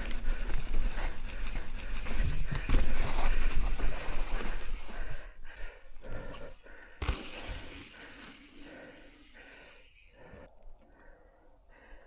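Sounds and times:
bike knocking over bumps: 0:02.2 - 0:04.4, 0:07.0 - 0:07.9.

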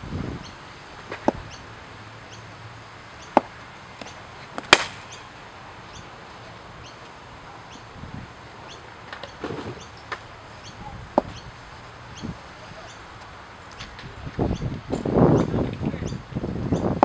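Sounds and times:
cricket bat striking ball: 0:04.6 - 0:05.0.

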